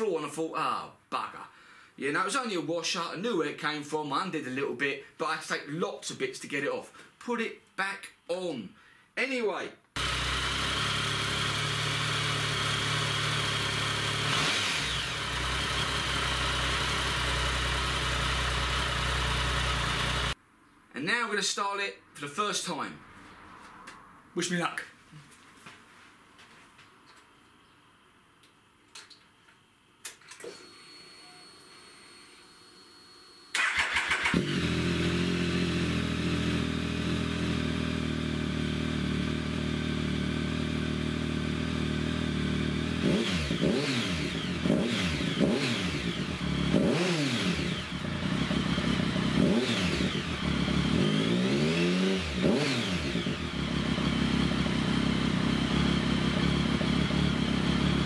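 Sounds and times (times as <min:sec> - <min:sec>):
motorcycle engine idling and revving: 0:10.0 - 0:20.4, 0:33.6 - 0:58.0.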